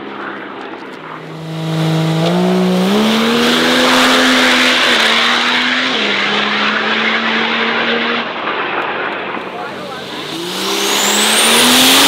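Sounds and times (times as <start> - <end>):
race car engine accelerating: 1.0 - 8.5, 9.2 - 12.0
loud exhaust noise: 1.1 - 8.0, 9.3 - 12.0.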